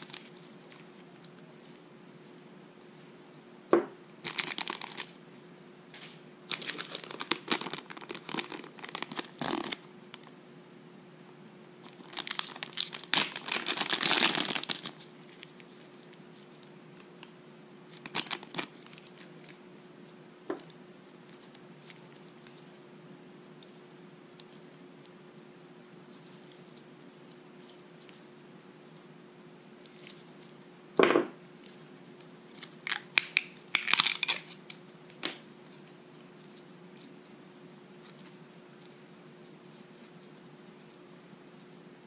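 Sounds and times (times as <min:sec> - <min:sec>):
plastic bag crinkling and tearing: 0:04.2 - 0:05.2, 0:06.5 - 0:10.3, 0:11.8 - 0:15.6, 0:17.9 - 0:19.6, 0:32.6 - 0:34.6.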